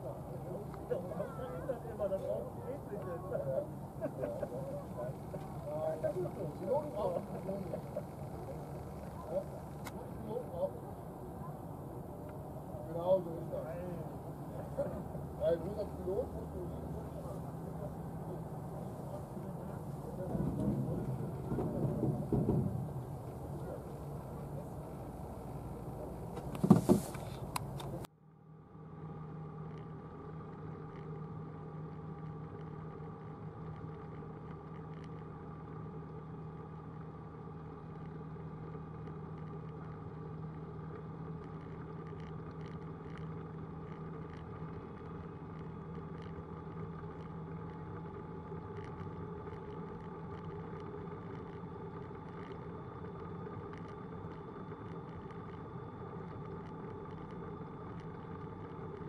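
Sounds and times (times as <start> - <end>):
propeller engine droning: 0.0 - 59.0.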